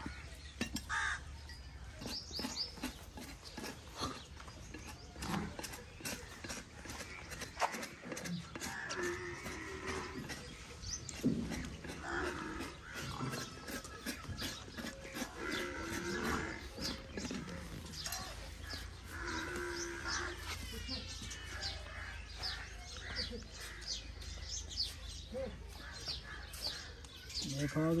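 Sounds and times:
birds chirping: 0.0 - 28.0
farm animals calling: 0.0 - 28.0.

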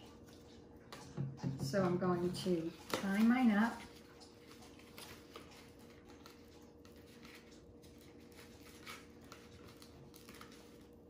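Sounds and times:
wool and paper rustling: 2.2 - 11.0.

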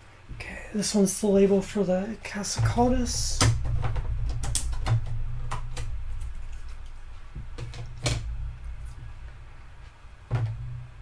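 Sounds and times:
steady low hum: 0.0 - 11.0
plastic containers knocking: 2.4 - 11.0.

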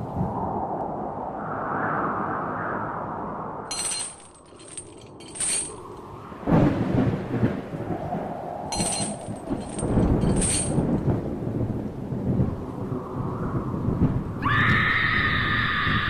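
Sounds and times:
rain: 3.6 - 16.0
high ringing clinks: 3.7 - 6.0, 8.7 - 10.9
thunder crash rumbling: 6.0 - 12.9.

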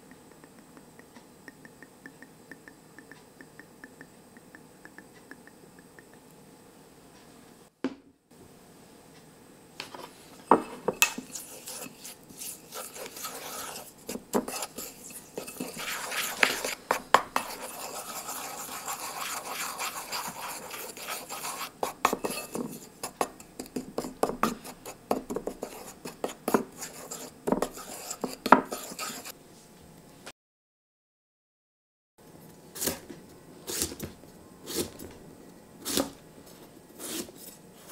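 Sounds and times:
spoon tapping bowl: 0.0 - 6.3
spoon stirring wet mixture: 0.1 - 6.4, 10.0 - 29.3.

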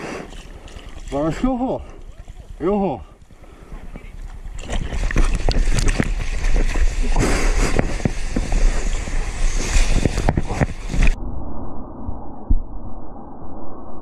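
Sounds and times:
wind rumble on microphone: 3.2 - 14.0.

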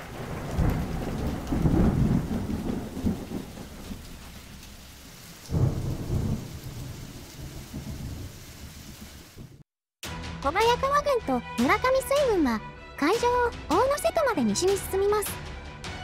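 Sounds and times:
low rolling thunder: 0.0 - 9.6
rain: 0.0 - 9.7.

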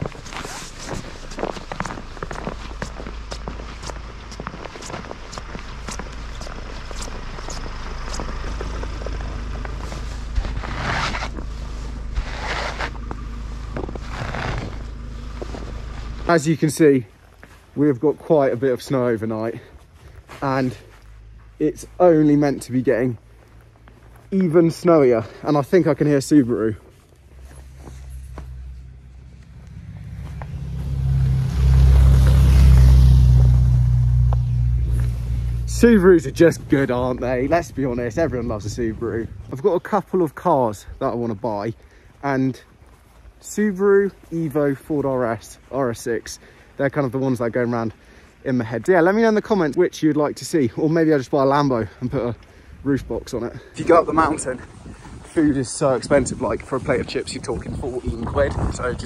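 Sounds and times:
footsteps in snow: 0.0 - 48.0
car engine approaching: 0.0 - 59.0
sleeve swishing snow off windscreen: 9.8 - 16.3.

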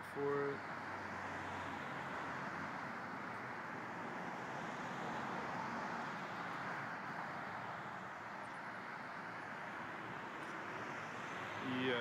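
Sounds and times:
road traffic hiss: 0.0 - 12.0.

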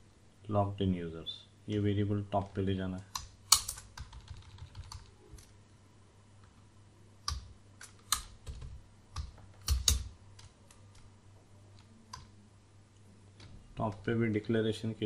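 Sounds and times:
keyboard key presses: 3.2 - 5.5.

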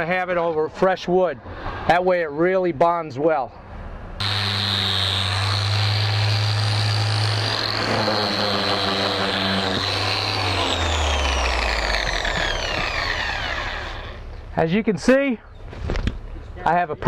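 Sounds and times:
orbital sander whining: 4.2 - 14.4.

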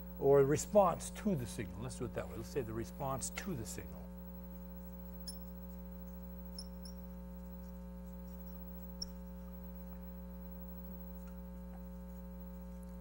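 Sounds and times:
electrical mains hum: 0.0 - 13.0
marker squeaking on whiteboard: 4.8 - 10.0.

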